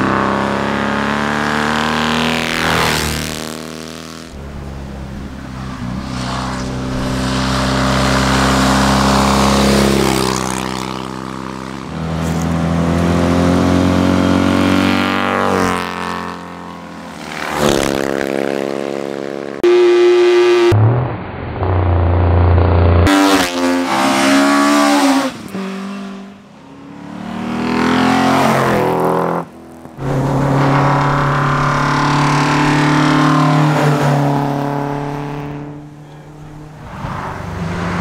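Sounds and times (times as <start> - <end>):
race car engines revving: 0.0 - 38.0
steady horn-like tone: 19.6 - 20.8.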